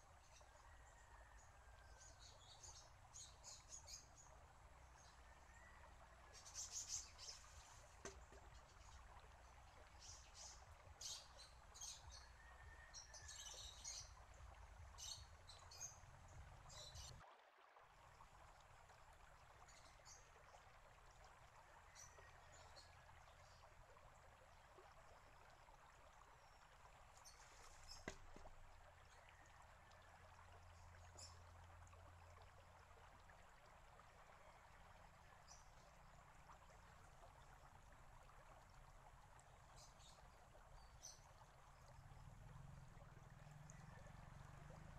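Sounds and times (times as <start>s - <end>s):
water trickling in stone basin: 0.0s - 44.9s
bamboo arm knocking on rock: 8.0s - 8.6s, 28.0s - 28.5s.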